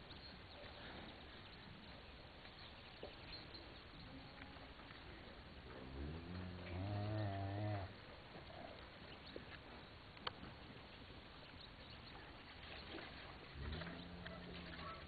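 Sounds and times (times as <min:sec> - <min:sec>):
cow mooing: 0:05.8 - 0:07.9.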